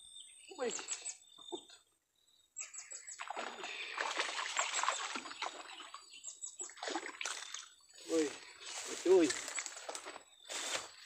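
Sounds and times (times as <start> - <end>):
water splashing and sloshing: 3.1 - 10.2.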